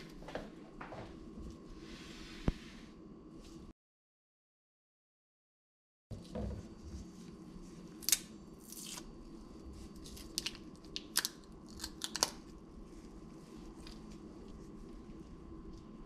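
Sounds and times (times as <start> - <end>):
garlic skins snapping and crinkling: 8.0 - 9.1, 10.0 - 12.5.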